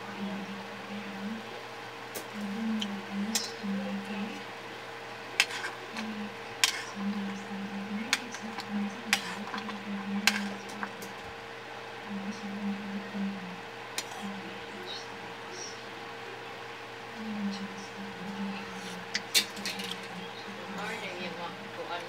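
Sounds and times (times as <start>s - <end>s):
faint hum: 0.0s - 22.0s.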